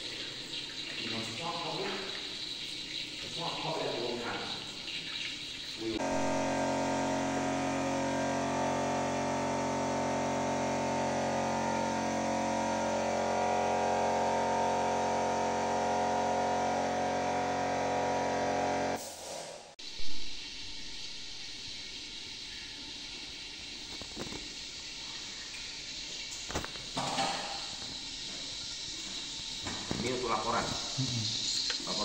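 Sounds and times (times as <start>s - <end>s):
steady hum with overtones: 5.8s - 19.0s.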